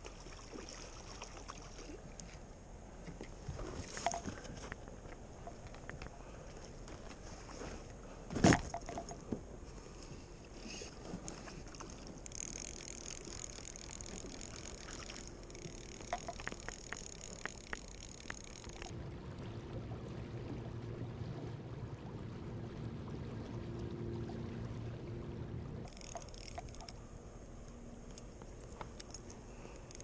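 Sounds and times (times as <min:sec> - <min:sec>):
river water lapping: 0:00.0 - 0:30.0
fly reel clicking: 0:11.8 - 0:18.9, 0:25.9 - 0:27.0, 0:29.0 - 0:30.0.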